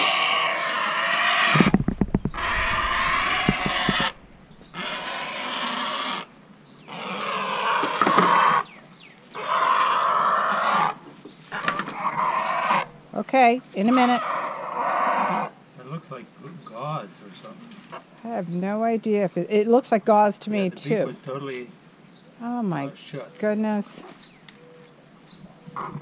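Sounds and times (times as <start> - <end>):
heron harsh raspy squawks: 0.0 - 6.3
knocks: 1.5 - 4.7.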